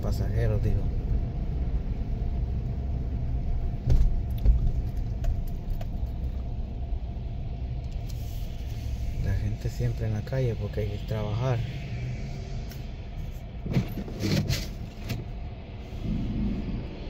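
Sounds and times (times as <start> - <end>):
car driving rumble inside cabin: 0.0 - 9.6.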